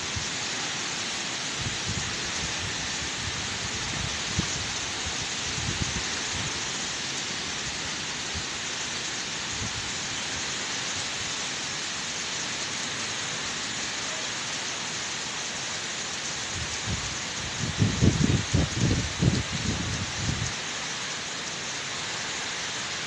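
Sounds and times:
rain: 0.0s - 23.0s
strong wind through trees: 0.0s - 23.0s
wind buffeting microphone: 16.6s - 20.5s.

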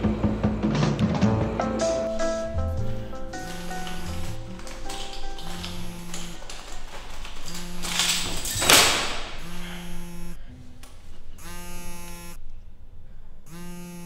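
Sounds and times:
phone vibrating buzz: 2.1s - 10.5s, 11.4s - 12.4s, 13.5s - 14.0s
clothing rustle: 2.1s - 11.4s.

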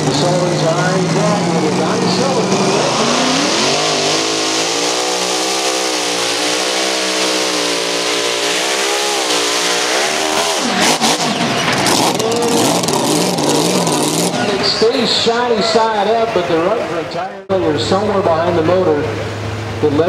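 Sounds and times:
engine popping: 0.0s - 15.0s
tractor engine running flat out: 0.0s - 15.0s.

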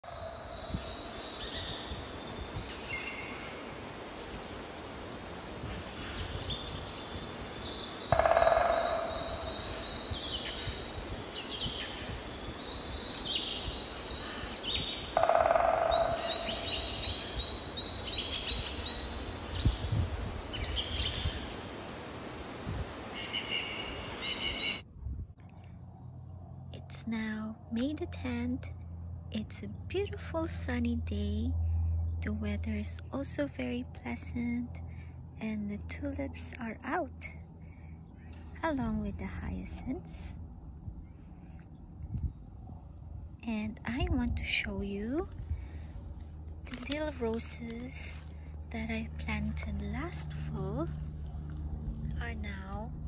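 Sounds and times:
louder lower bird calls: 0.0s - 24.8s
songbirds chirping and trilling: 0.0s - 24.8s.

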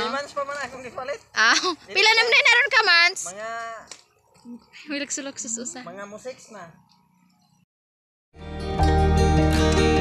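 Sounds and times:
plucked string music: 8.4s - 10.0s.

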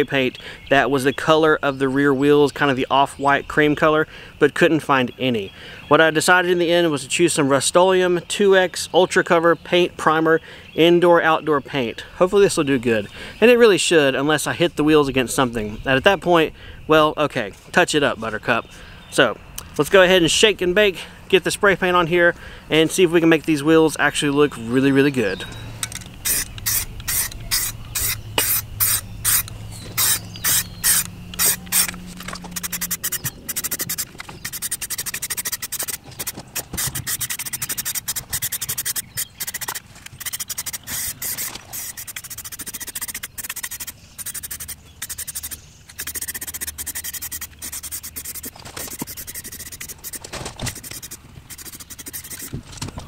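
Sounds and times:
spray paint can hissing: 26.2s - 52.6s.

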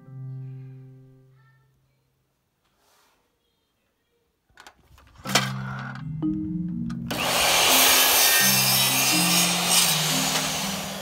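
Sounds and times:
mitre saw cutting: 7.1s - 11.0s.

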